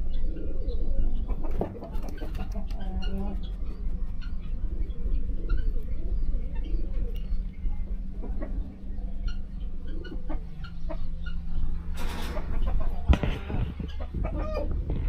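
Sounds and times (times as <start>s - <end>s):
chickens clucking: 0.0s - 15.0s
noisy burst: 11.6s - 15.0s.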